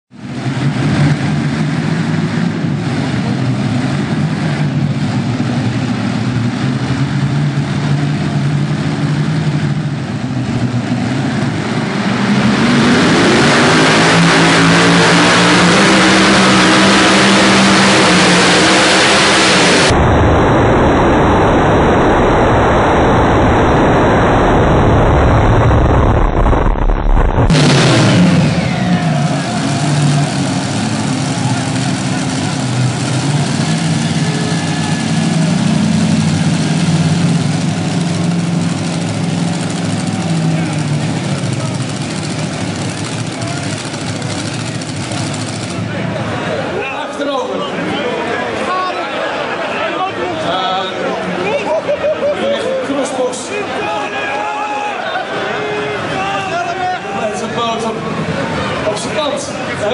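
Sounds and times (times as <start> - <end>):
tractor engines revving: 0.1 - 53.7.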